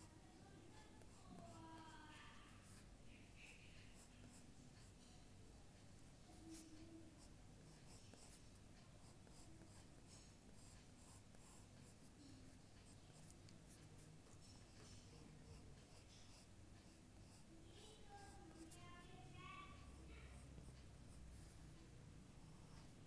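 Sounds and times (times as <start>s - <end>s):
low background hum: 0.0s - 23.0s
drawing tool scratching paper: 9.0s - 18.8s.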